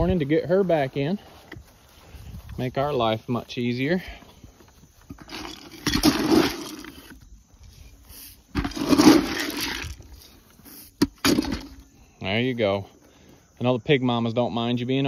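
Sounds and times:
feed pellets pouring from bucket: 8.6s - 10.0s.

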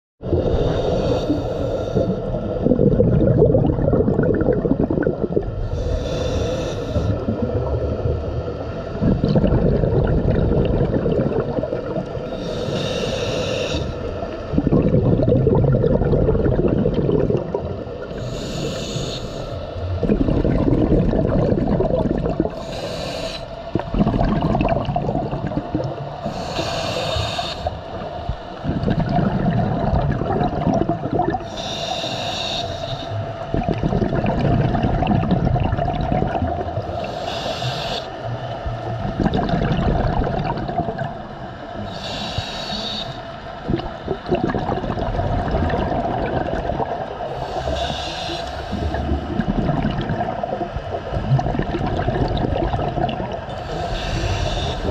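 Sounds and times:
bubbling rumble of exhaled air: 0.2s - 54.9s
regulator hiss on inhalation: 0.4s - 2.3s, 5.6s - 7.2s, 12.3s - 14.2s, 18.2s - 19.8s, 22.5s - 23.7s, 26.2s - 28.1s, 31.4s - 33.3s, 36.8s - 38.3s, 41.8s - 43.4s, 47.3s - 49.0s, 53.5s - 54.9s.

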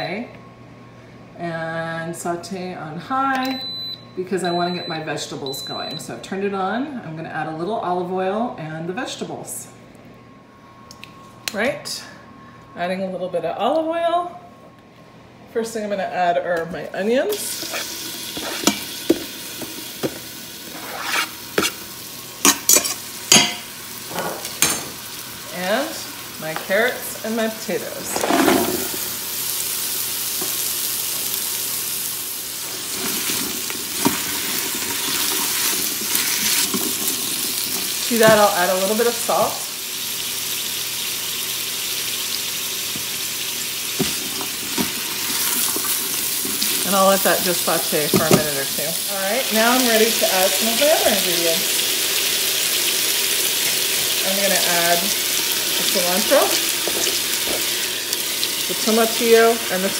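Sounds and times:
onions sizzling in oil: 17.3s - 59.9s.

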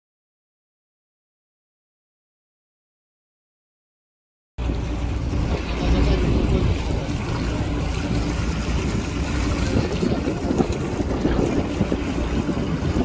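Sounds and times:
motorboat engine running: 4.6s - 13.0s
water rushing past: 4.6s - 13.0s
wind buffeting microphone: 4.6s - 13.0s.

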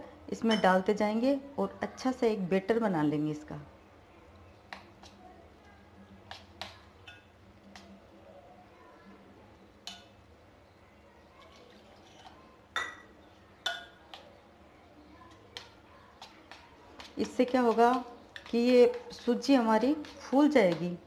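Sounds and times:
metal spoon clinking in steel bowl: 12.8s - 14.0s.

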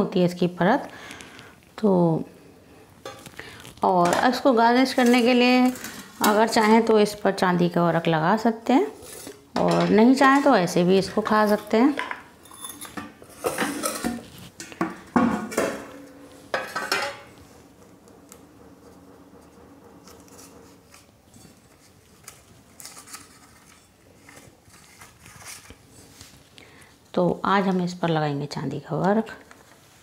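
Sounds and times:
kitchen utensils clattering: 9.0s - 17.4s.

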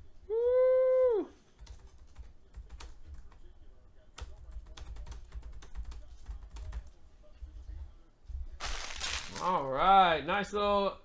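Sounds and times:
typing on computer keyboard: 1.6s - 3.5s, 4.2s - 6.9s.

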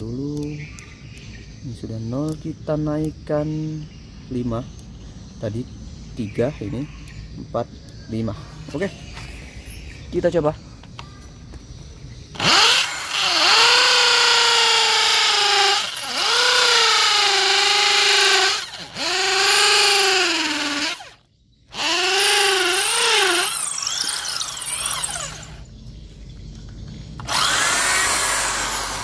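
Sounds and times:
impact drill hammering concrete: 12.4s - 25.6s, 27.2s - 29.0s.

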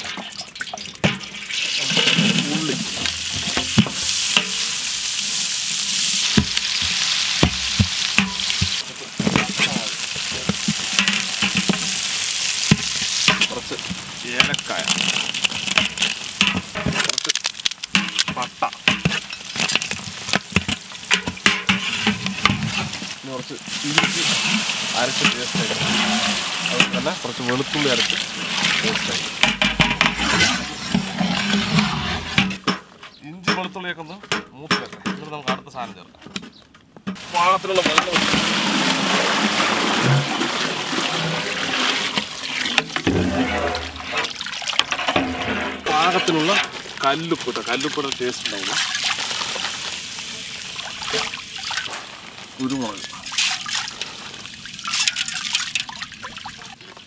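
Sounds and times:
shallots sizzling in hot oil: 0.0s - 30.1s, 37.2s - 39.8s, 43.8s - 56.7s
water pouring into a metal pot: 0.0s - 30.2s, 37.2s - 57.0s
metal ladle stirring: 0.0s - 32.7s, 37.1s - 49.9s, 54.8s - 56.0s
sharp knocks: 29.4s - 30.6s.

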